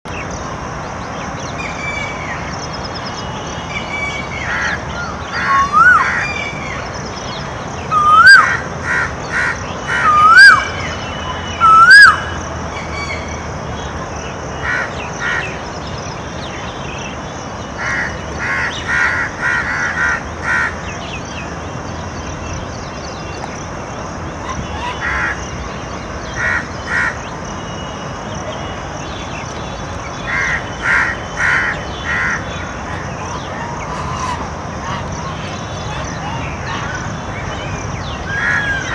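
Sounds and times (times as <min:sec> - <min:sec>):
koel whistled calls: 0:03.2 - 0:06.9, 0:07.9 - 0:08.6, 0:09.4 - 0:13.3
crows cawing: 0:08.0 - 0:10.7, 0:17.8 - 0:20.8.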